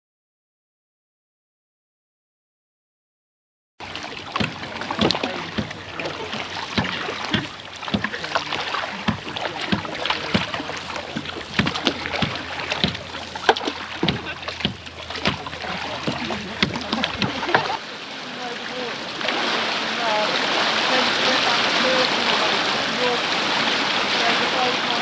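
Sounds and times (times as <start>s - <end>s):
paddle knocks: 3.8s - 17.8s
paddles splashing in water: 3.8s - 25.0s.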